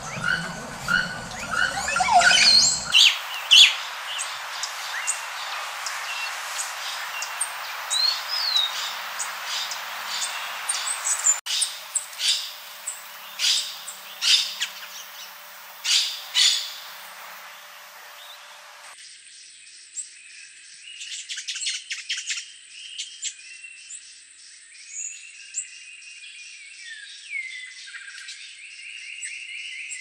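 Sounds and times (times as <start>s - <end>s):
bird whistle rising and falling: 0.0s - 7.3s
songbirds chipping and twittering: 0.0s - 30.0s.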